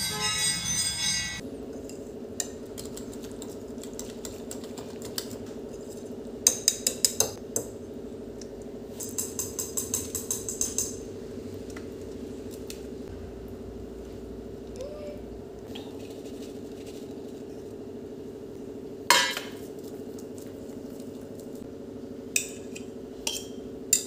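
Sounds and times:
whisk clicking against bowl: 2.4s - 5.5s
low hum: 10.9s - 19.0s.

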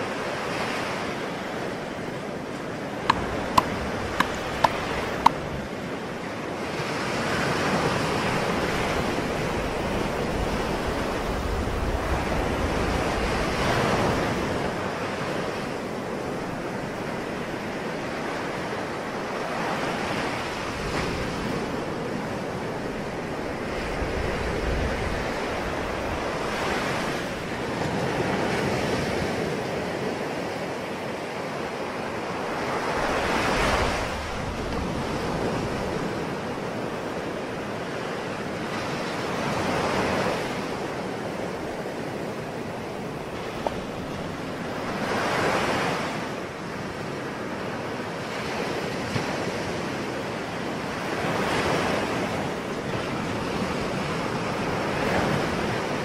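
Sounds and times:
waves breaking: 0.0s - 56.0s.

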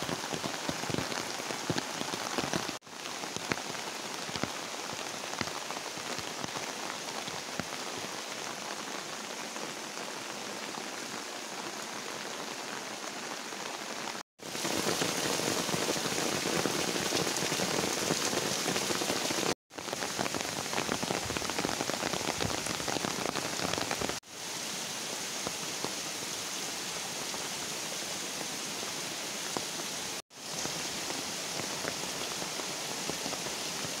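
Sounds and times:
rain falling on foliage: 0.0s - 34.0s.

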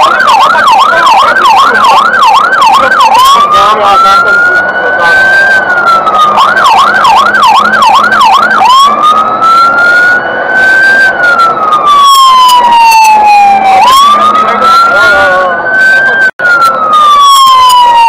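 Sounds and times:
fire engine siren yelp and wail: 0.0s - 18.0s.

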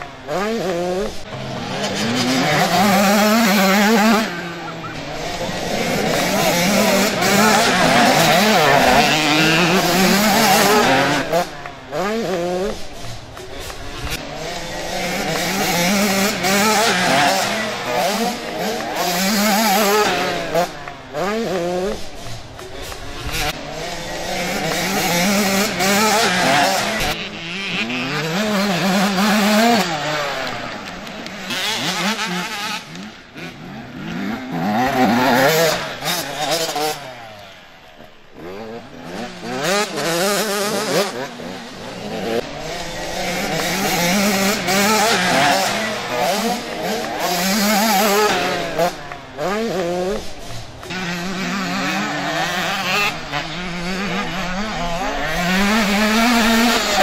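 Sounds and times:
motocross bikes revving: 0.0s - 57.0s.

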